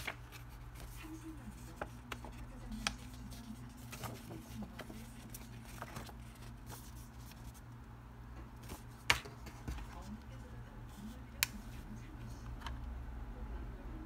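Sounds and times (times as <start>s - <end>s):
paper leaflets rustling: 0.0s - 7.7s, 8.6s - 11.9s.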